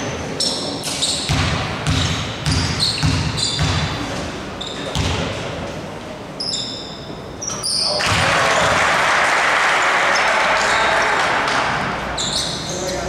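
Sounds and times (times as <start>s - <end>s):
crowd noise: 0.0s - 13.0s
sneaker squeaks on court: 0.4s - 5.3s, 6.4s - 8.2s, 12.2s - 13.0s.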